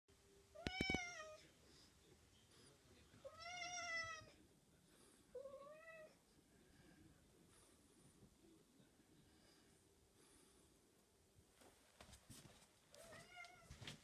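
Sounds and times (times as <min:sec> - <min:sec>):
cat meowing: 0:00.6 - 0:01.4.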